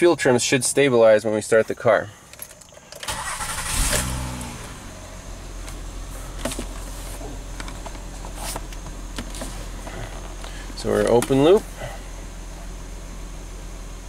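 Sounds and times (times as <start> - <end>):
car engine idling: 0.0 - 14.0
starter cranking: 3.0 - 4.2.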